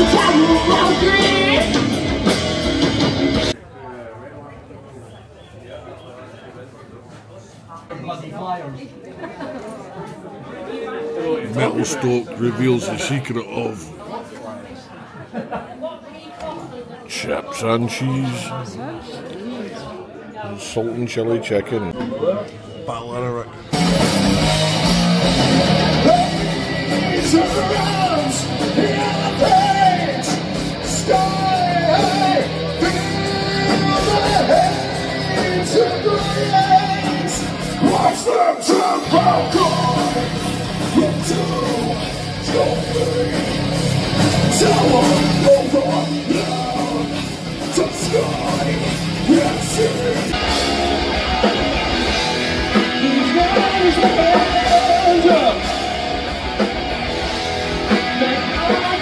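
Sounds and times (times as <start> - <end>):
shouted vocals: 0.0 - 1.9, 25.4 - 56.7
live heavy rock band: 0.0 - 3.6, 23.7 - 59.0.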